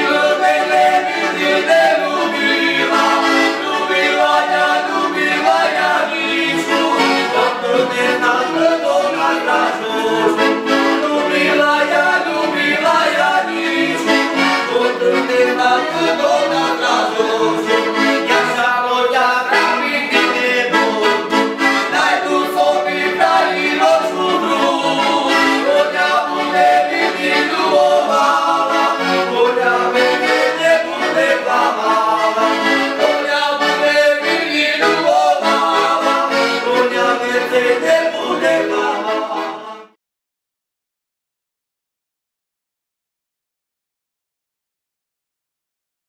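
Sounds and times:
accordion playing folk tune: 0.0 - 40.0
men singing: 0.0 - 40.0.

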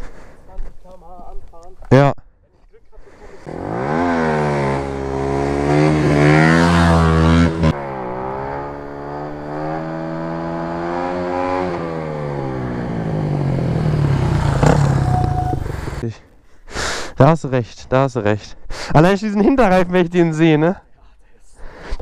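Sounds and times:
motorcycle engine accelerating: 3.4 - 16.0.

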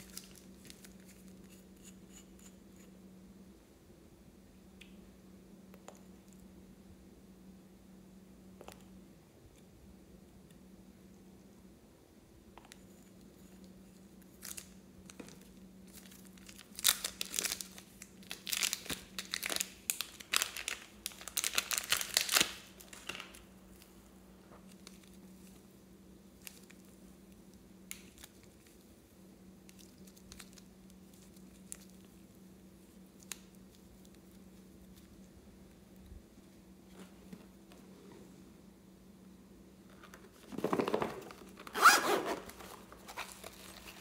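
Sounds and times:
crinkling handling noise: 0.0 - 1.7, 12.7 - 25.8, 26.4 - 29.0, 29.6 - 38.4, 39.8 - 44.0
faint steady hum: 0.0 - 44.0.

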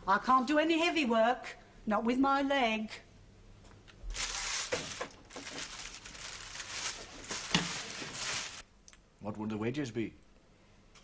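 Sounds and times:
rustling scraping strokes: 4.1 - 8.6.

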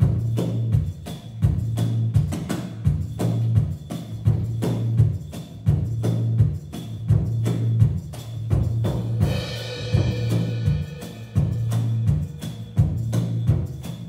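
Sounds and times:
drum strikes: 0.0 - 14.0.

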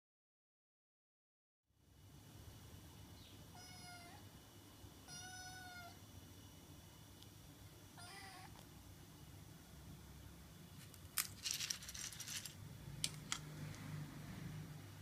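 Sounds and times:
kitten meowing: 3.6 - 4.2, 5.1 - 6.0, 8.0 - 8.6.

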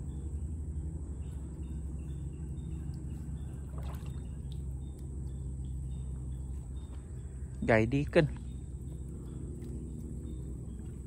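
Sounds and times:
steady low hum: 0.0 - 11.0
water splashing and dripping: 3.6 - 5.1.

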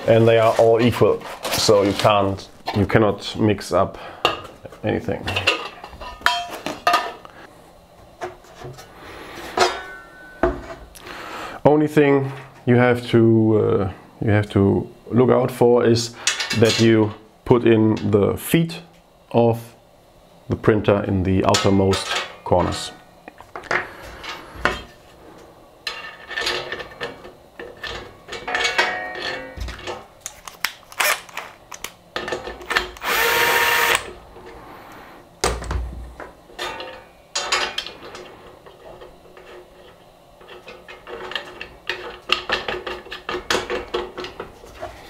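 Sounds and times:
cordless drill driving screw: 33.0 - 34.1.

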